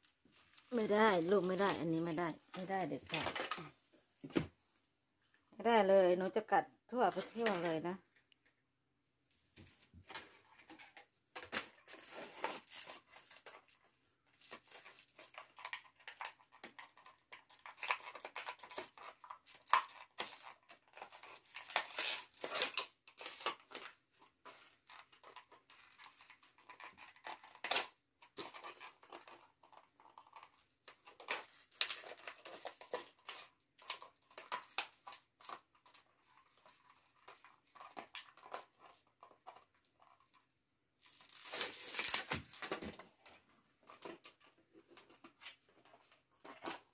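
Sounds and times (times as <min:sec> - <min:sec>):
plastic bottle crinkling: 0:41.0 - 0:46.9.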